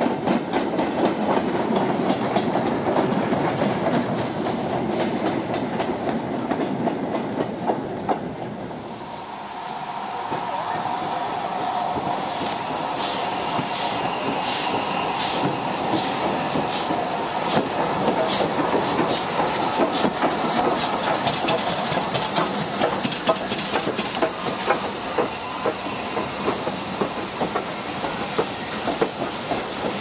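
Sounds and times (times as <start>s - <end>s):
steam locomotive passing: 0.0s - 30.0s
steam hissing: 8.7s - 30.0s
coach wheels clattering over rail joints: 10.2s - 30.0s.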